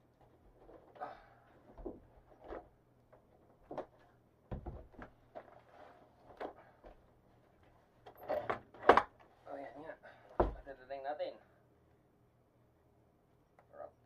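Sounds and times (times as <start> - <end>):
box knocks and rustles: 3.7 - 5.5.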